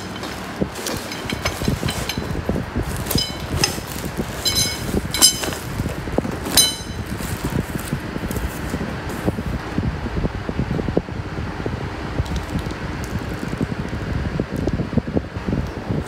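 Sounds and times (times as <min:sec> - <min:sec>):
metal tubes clinking: 0:00.0 - 0:09.2
plastic wrap rustling: 0:00.0 - 0:09.6.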